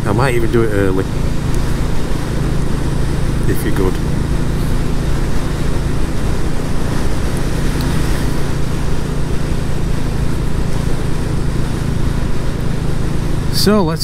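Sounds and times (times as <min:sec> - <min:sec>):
motorcycle engine running: 0:00.0 - 0:14.0.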